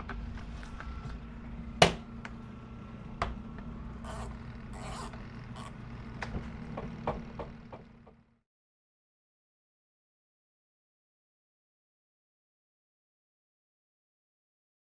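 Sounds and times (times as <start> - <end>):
spin dryer spinning: 0.0 - 8.4.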